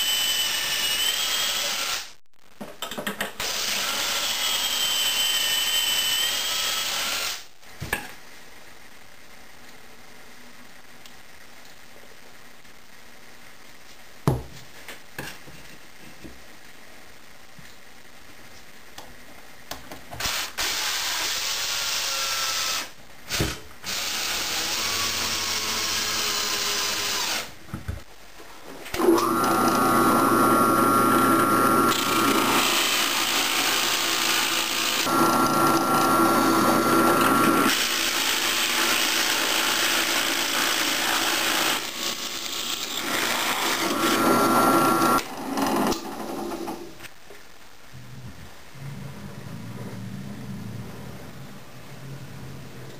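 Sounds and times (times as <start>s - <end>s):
drill press boring plywood: 28.9s - 46.9s
power tool running: 29.0s - 46.0s.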